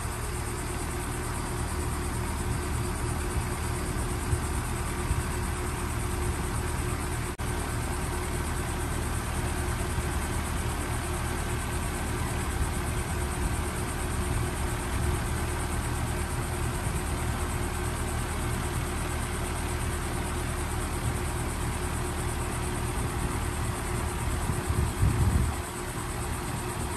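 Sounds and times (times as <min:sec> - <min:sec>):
compressor hum: 0:00.0 - 0:26.9
fan air rushing: 0:00.0 - 0:26.9.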